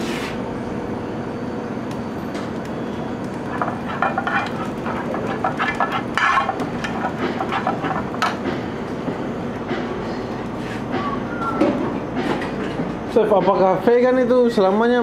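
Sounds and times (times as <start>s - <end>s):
gas burner rushing: 2.3s - 11.2s
metal spoon scraping a frying pan: 3.4s - 8.4s.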